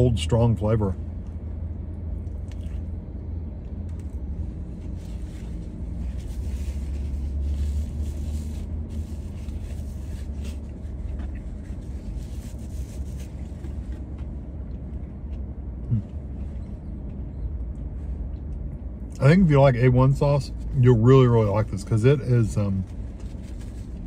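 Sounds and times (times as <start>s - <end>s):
low rumble in car cabin: 0.0s - 24.0s
person chewing: 2.2s - 3.0s.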